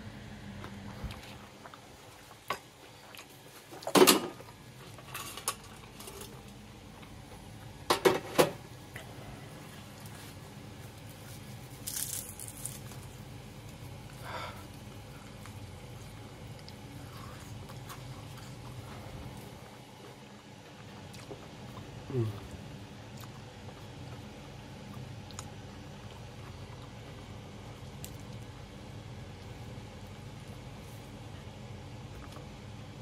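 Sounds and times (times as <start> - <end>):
steady low hum: 0.0 - 33.0
dishes clinking and knocking: 7.9 - 8.6.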